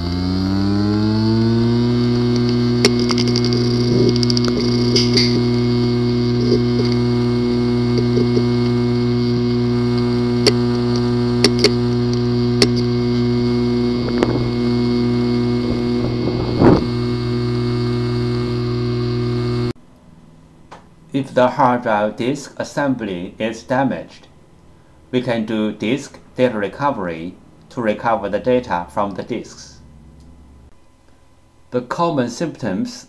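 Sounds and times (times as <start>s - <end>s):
hard disk drive humming: 0.0s - 21.2s
hard disk sharp clicks: 2.2s - 15.0s.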